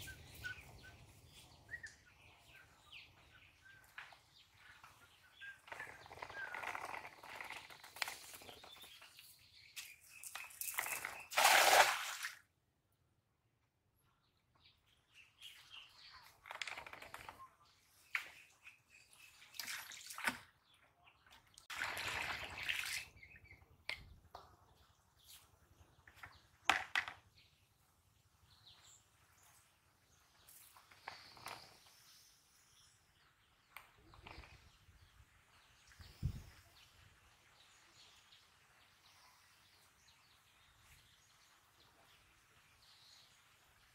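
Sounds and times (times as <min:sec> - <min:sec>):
birds chirping: 0:00.0 - 0:11.4
net splashing onto water: 0:10.7 - 0:12.4.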